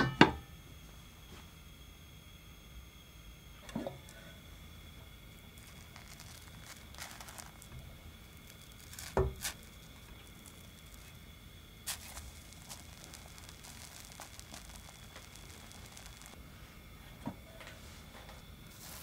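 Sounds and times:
pancake thudding in pan: 8.4s - 9.7s.

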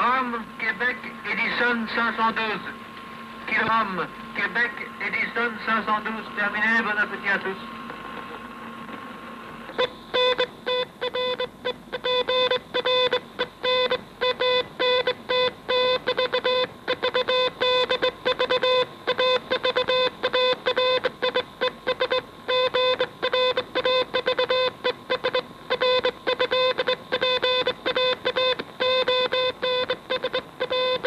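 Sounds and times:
morse code beeps: 9.7s - 31.0s.

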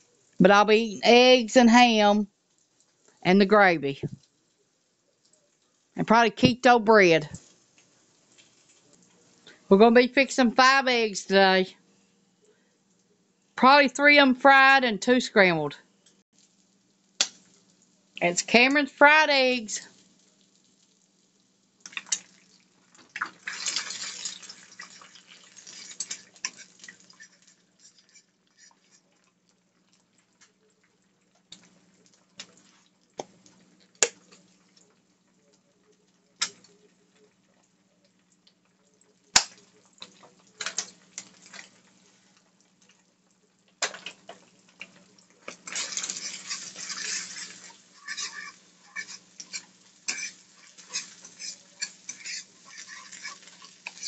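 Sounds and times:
eggs sizzling in a pan: 0.0s - 13.7s, 15.8s - 54.0s
fork scraping and tapping pan: 45.5s - 54.0s.

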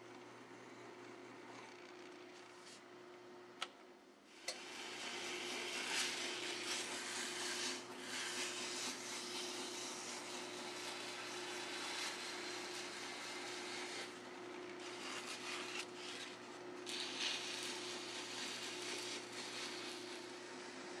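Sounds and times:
sanding belt rubbing hiss: 4.6s - 14.2s, 14.8s - 21.0s.

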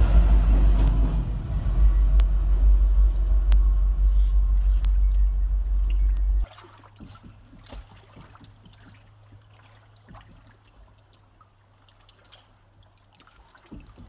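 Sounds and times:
low steady hum: 0.0s - 13.9s
soft water splashes: 2.2s - 14.0s
small waves lapping against wall: 3.5s - 14.0s.

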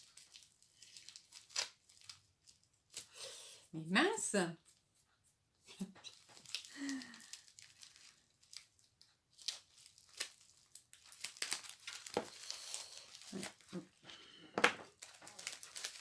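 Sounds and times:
plastic packaging crinkling and tearing: 0.0s - 3.2s, 6.0s - 14.0s, 14.6s - 16.0s.

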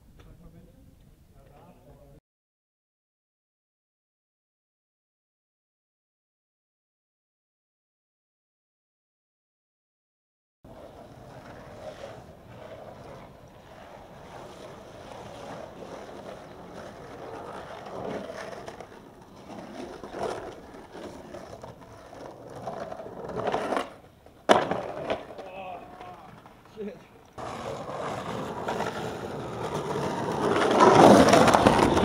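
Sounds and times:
skateboard clack: 10.7s - 32.0s
skateboard wheels rolling on concrete: 10.7s - 32.0s.

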